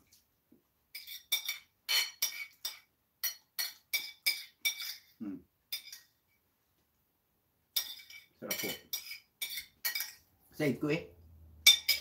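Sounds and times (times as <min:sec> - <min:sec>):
metal spoon clinking on plate: 0:01.0 - 0:06.1, 0:07.8 - 0:10.3, 0:11.6 - 0:12.0.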